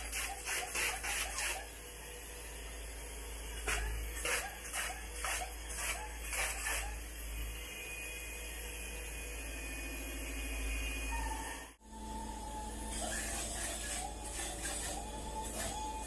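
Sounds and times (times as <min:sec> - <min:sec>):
spray-foam gun hissing in spurts: 0:00.0 - 0:01.7, 0:03.6 - 0:07.0, 0:13.0 - 0:16.0.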